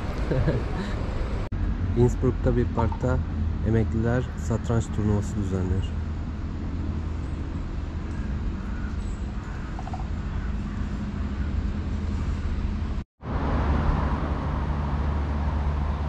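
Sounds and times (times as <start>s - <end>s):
low traffic rumble: 0.0s - 16.0s.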